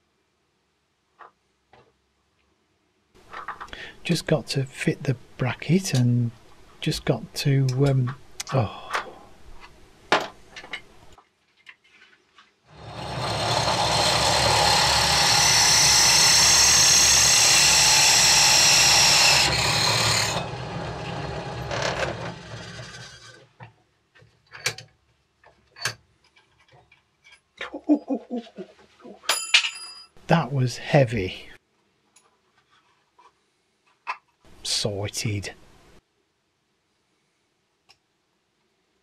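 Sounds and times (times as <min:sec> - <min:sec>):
drill press drilling metal: 0:12.7 - 0:23.3.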